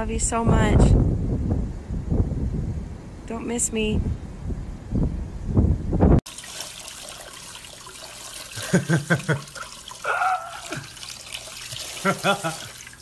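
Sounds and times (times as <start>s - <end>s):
faucet water spraying: 6.3s - 13.0s.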